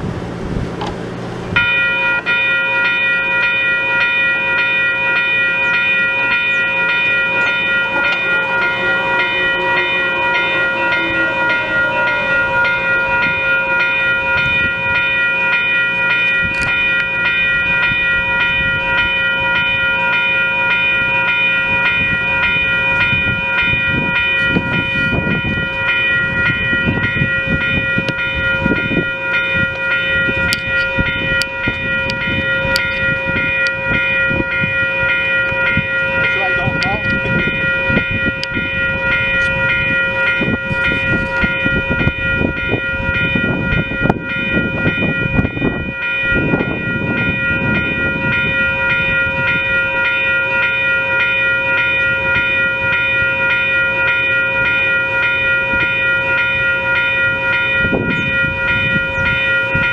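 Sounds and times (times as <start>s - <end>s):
low rumble: 0.0s - 2.4s, 6.5s - 19.8s
electronic crossing bell ringing: 1.5s - 59.9s.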